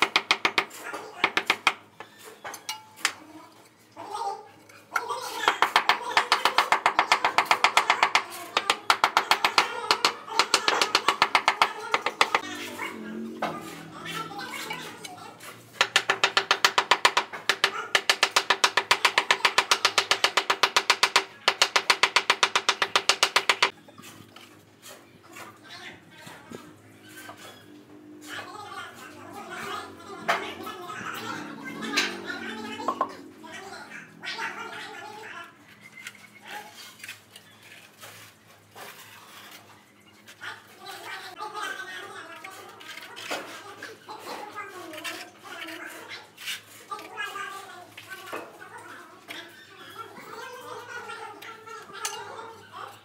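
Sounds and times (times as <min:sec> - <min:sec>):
hammer handle tapping ceramic tile: 0:15.8 - 0:23.7
trowel scraping wet mortar: 0:42.5 - 0:48.3.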